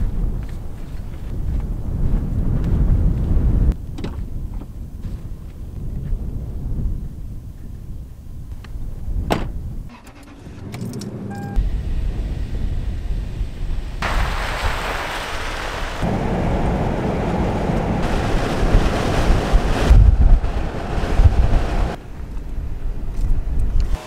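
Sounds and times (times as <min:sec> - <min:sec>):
road and wind noise: 0:00.0 - 0:24.0
car door shutting: 0:09.3 - 0:11.6
short beep: 0:11.3 - 0:11.6.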